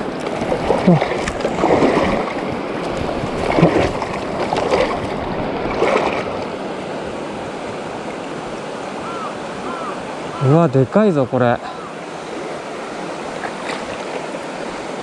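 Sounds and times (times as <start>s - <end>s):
short water pulses: 0.0s - 7.0s, 11.6s - 15.0s
river current rushing: 0.0s - 15.0s.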